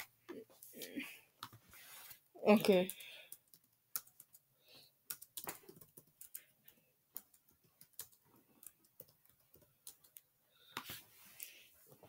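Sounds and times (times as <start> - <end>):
computer keyboard clicks: 2.8 - 4.4, 5.0 - 10.2.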